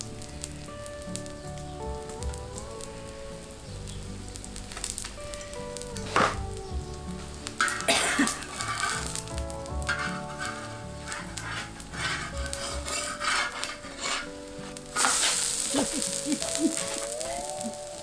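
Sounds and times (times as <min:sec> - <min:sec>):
pancake sizzling in oil: 0:00.0 - 0:18.0
metal spatula scraping pan: 0:06.1 - 0:06.4, 0:07.6 - 0:09.2, 0:09.8 - 0:15.8.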